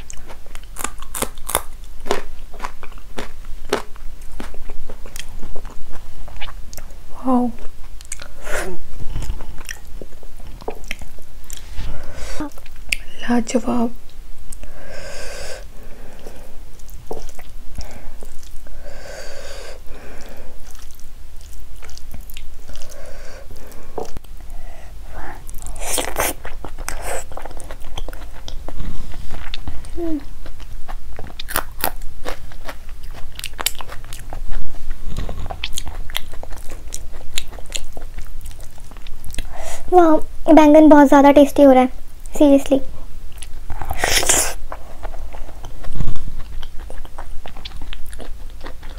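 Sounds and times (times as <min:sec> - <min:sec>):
crunchy bites: 0:00.0 - 0:05.7, 0:31.2 - 0:34.4
wet chewing: 0:00.0 - 0:07.0, 0:09.0 - 0:11.8, 0:20.0 - 0:24.4, 0:25.4 - 0:39.5, 0:43.3 - 0:48.9.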